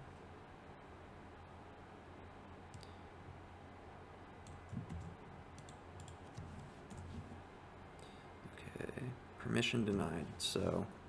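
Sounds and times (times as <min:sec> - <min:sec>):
low steady hum: 0:00.0 - 0:11.0
computer mouse clicks: 0:04.4 - 0:07.2.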